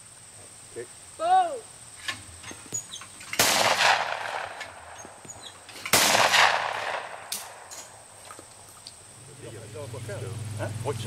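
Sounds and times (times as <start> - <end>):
shotgun shots with echo: 3.3 - 5.0, 5.8 - 7.7.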